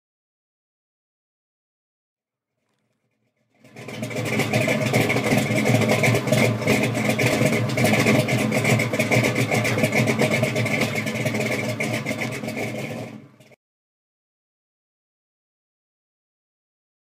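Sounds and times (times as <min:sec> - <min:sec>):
car engine running: 0:03.5 - 0:13.6.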